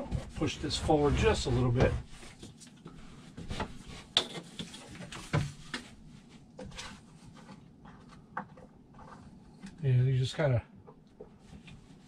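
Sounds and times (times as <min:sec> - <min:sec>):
furniture sections knocking and rubbing: 0:00.0 - 0:02.6, 0:03.3 - 0:05.9.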